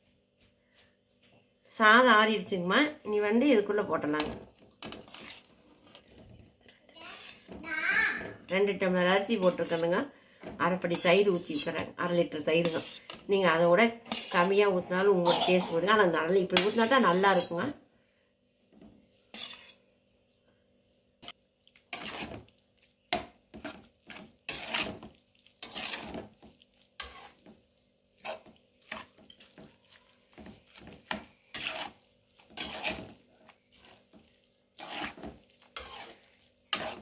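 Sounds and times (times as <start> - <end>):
ladle stirring wet rice: 4.0 - 6.5, 7.1 - 7.6, 8.5 - 17.6, 18.7 - 19.9, 21.2 - 37.0.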